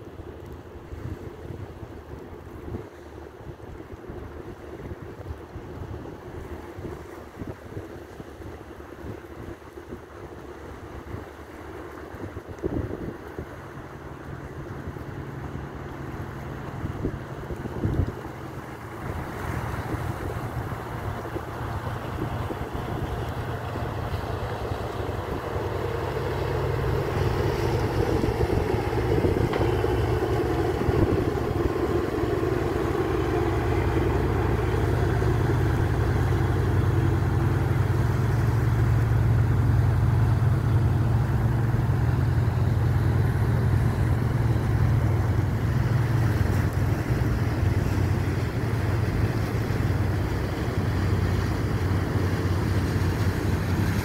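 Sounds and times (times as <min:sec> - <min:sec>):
ferry engines droning: 0:13.2 - 0:54.0.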